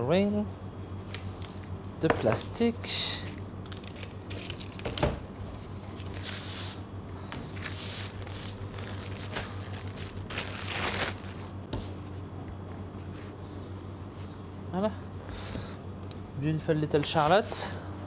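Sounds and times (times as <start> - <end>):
steady low hum: 0.0 - 18.0
plastic and paper crinkling: 3.7 - 4.8, 7.5 - 11.6.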